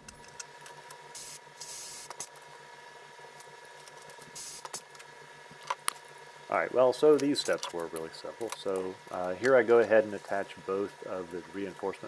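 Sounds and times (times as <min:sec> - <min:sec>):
pneumatic rivet squeezer hiss: 0:01.1 - 0:02.3, 0:04.4 - 0:04.8.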